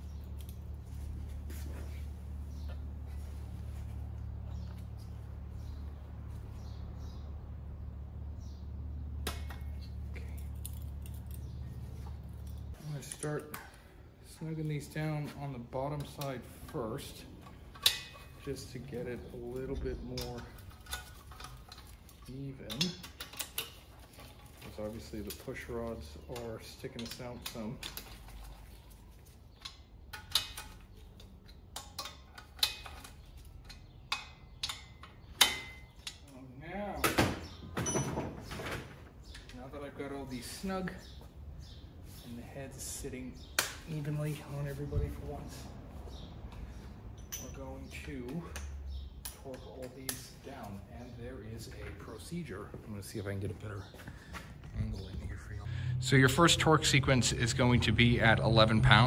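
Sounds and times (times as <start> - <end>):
steady low hum: 52.5 - 59.0.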